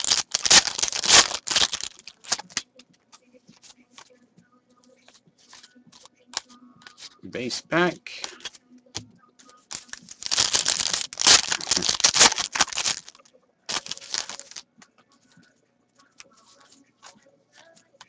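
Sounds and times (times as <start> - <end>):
foil wrapper crinkling and tearing: 0.0 - 2.6, 9.7 - 14.6.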